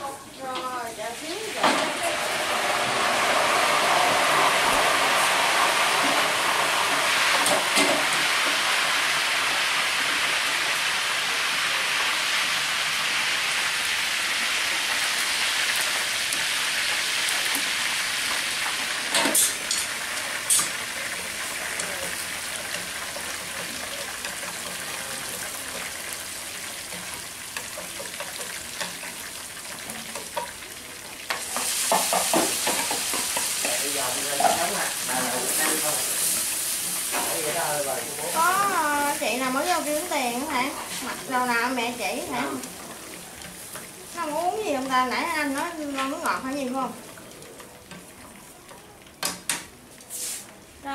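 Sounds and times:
hot oil sizzling in pans: 0.0s - 50.9s.

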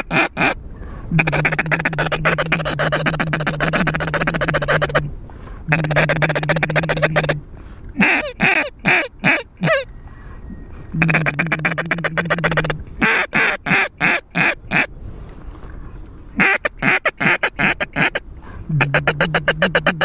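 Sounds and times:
duck call quacks: 0.0s - 5.1s, 5.7s - 7.4s, 8.0s - 9.9s, 11.0s - 14.9s, 16.4s - 20.0s
duck call feed chatter: 1.2s - 5.0s, 5.7s - 7.4s, 8.0s - 9.9s, 11.0s - 14.9s, 16.4s - 20.0s.

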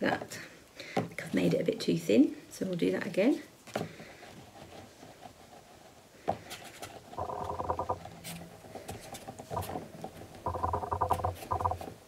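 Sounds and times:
hands rolling clay on wood: 3.6s - 12.0s.

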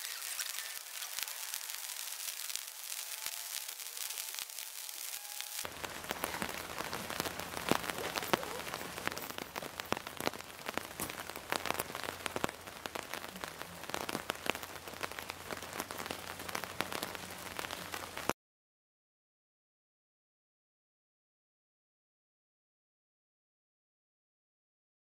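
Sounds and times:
rain pattering on fabric canopy: 0.0s - 18.4s.

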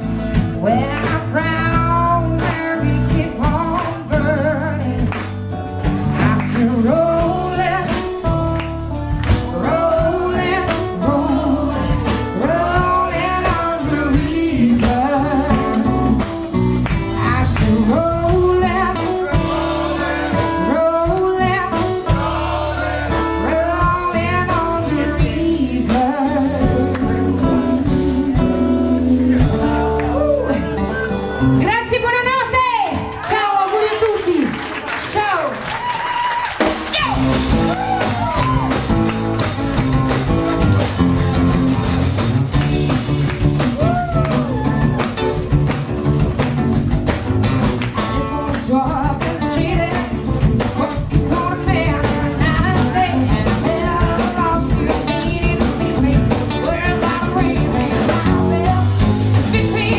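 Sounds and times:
electric bass: 0.0s - 32.7s, 36.6s - 59.9s
guitar: 0.0s - 59.9s
woman singing: 0.5s - 5.2s, 6.1s - 8.4s, 9.4s - 16.3s, 17.1s - 19.5s, 20.3s - 22.2s, 23.2s - 30.7s, 48.0s - 59.9s
drum beat: 11.9s - 30.0s, 36.3s - 59.9s.

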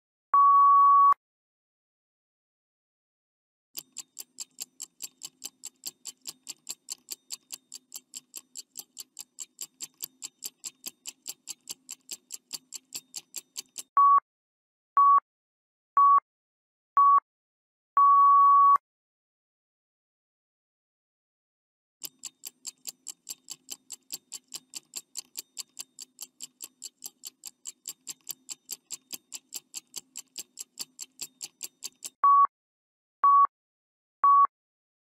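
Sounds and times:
short beeps: 0.4s - 1.2s, 14.0s - 14.2s, 18.0s - 18.8s, 32.2s - 32.5s, 33.2s - 33.5s, 34.2s - 34.5s
clock ticking: 3.8s - 14.0s, 22.0s - 32.2s.

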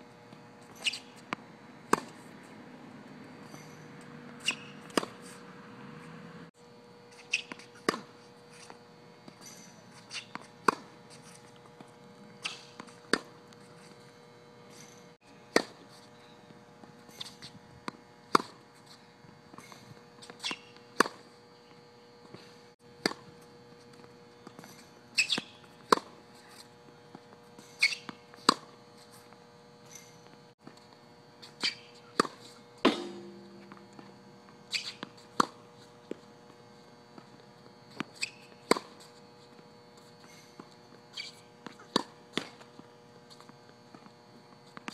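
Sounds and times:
sneaker squeaks on court: 0.7s - 1.3s, 3.4s - 5.4s, 9.4s - 11.4s, 19.6s - 21.2s, 24.5s - 26.1s, 27.6s - 28.6s, 29.8s - 30.3s, 31.4s - 35.6s, 38.1s - 39.0s, 40.2s - 42.6s
tennis balls hit with racket: 3.5s - 6.3s, 17.9s - 18.6s, 24.6s - 26.2s, 31.6s - 35.6s, 41.6s - 42.7s.

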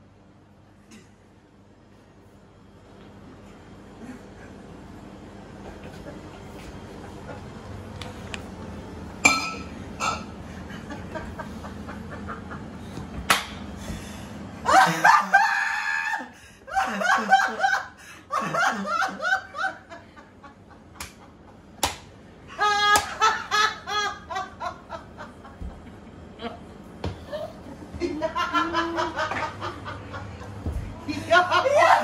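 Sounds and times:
hearty laughter: 10.5s - 13.0s, 14.6s - 21.8s, 27.2s - 32.0s.

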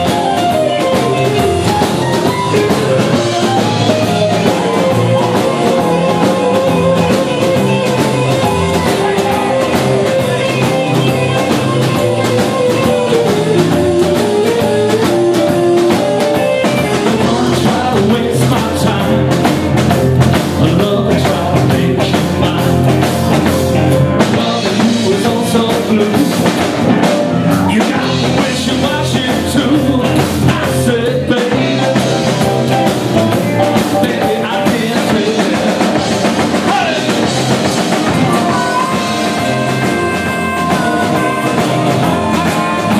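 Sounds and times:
man singing: 0.0s - 12.0s, 12.7s - 42.9s
bass guitar: 0.0s - 42.9s
drum kit: 0.0s - 42.9s
electric guitars: 0.0s - 42.9s.

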